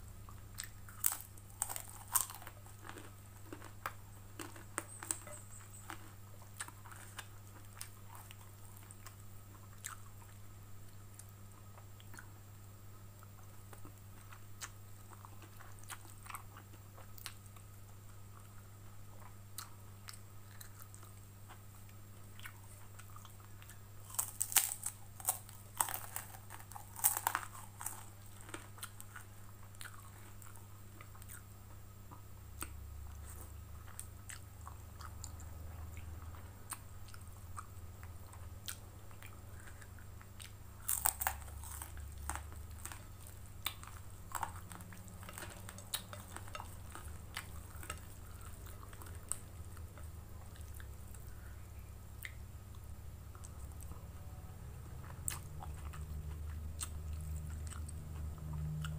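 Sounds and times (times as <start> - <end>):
low steady hum: 0.0 - 58.9
crackers crunching: 0.3 - 12.4, 18.3 - 31.5, 32.1 - 51.4
chewing noodles: 0.6 - 10.4.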